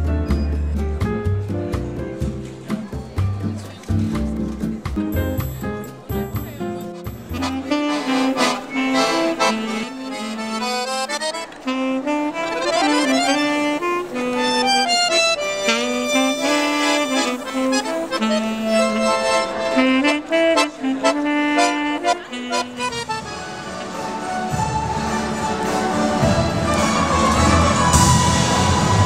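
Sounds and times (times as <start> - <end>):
accordion: 0.0 - 29.0
saxophone: 7.3 - 29.0.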